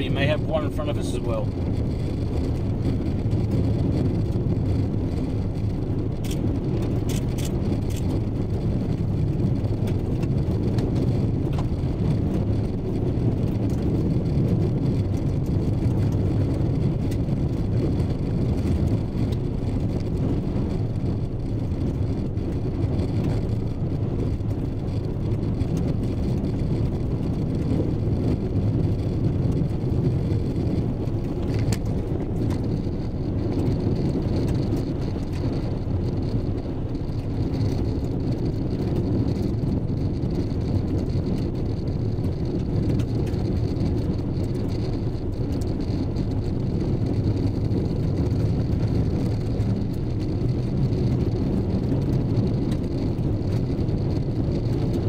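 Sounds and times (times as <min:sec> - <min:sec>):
low rumble of tyres and engine: 0:00.0 - 0:55.0
vehicle driving on gravel road: 0:00.0 - 0:55.0.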